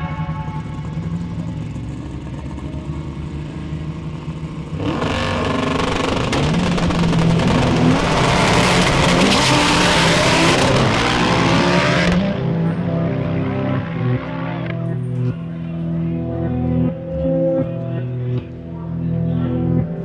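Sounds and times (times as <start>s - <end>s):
music: 0.0s - 1.7s, 11.4s - 20.0s
drag race car accelerating: 0.3s - 15.3s.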